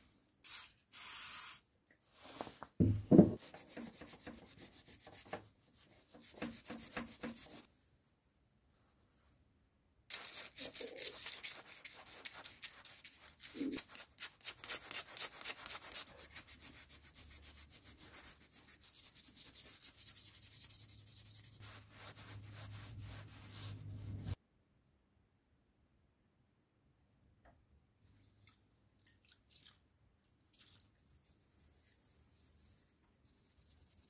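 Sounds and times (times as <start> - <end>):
hand-sanding metal with abrasive paper: 3.4 - 7.7, 10.1 - 24.4, 31.2 - 34.0.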